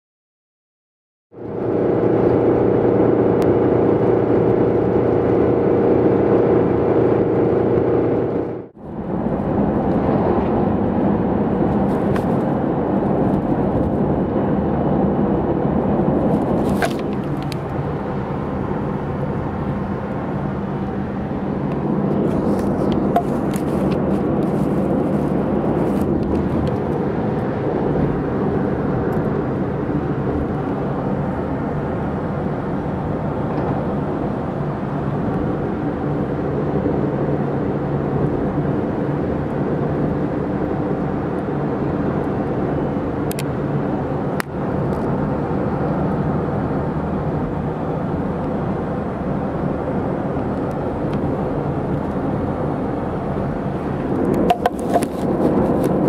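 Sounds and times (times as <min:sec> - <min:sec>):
car engine and road noise: 0:01.3 - 0:56.0
steady humming drone: 0:49.6 - 0:56.0.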